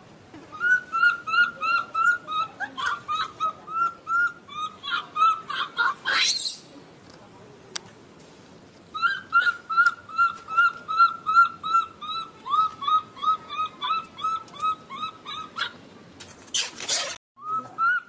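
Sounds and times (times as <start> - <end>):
baby monkey crying: 0.6 - 6.6, 9.0 - 15.8.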